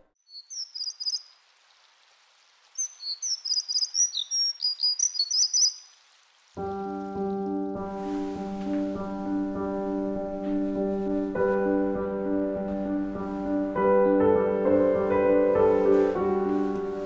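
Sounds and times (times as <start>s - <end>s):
piano music: 6.6s - 17.0s.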